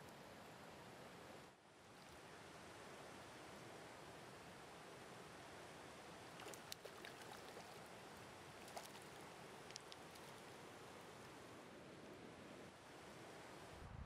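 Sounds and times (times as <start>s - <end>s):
stream flowing: 0.1s - 13.6s.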